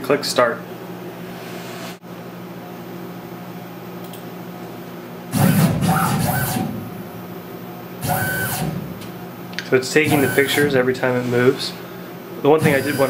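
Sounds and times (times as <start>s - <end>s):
steady low hum: 0.0s - 13.0s
milling machine axis whirring whine: 5.3s - 7.3s, 8.0s - 13.0s.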